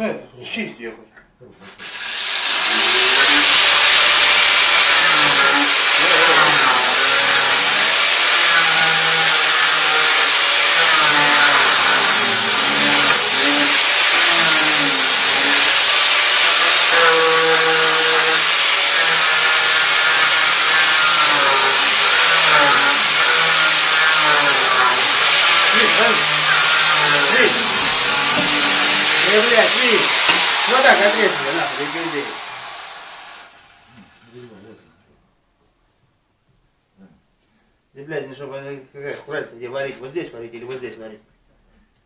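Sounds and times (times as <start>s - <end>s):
angle grinder cutting steel pipe: 1.8s - 34.4s.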